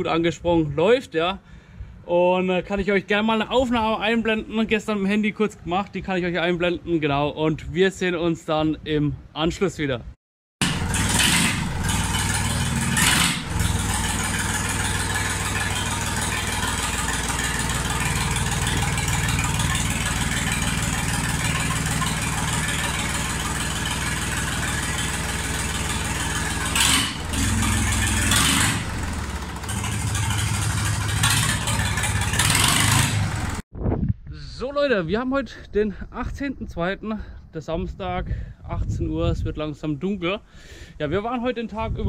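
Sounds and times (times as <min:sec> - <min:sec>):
tractor diesel engine running: 0:10.6 - 0:33.6.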